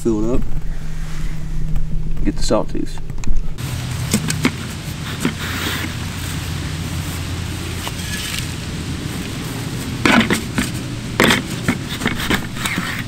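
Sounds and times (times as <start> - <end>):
steady low hum: 0.0 - 13.0
shovel scraping into soil: 3.6 - 13.0.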